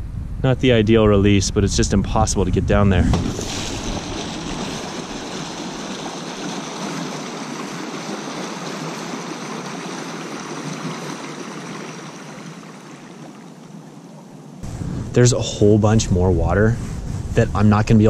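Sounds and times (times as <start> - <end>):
stream water rushing: 3.2 - 14.8.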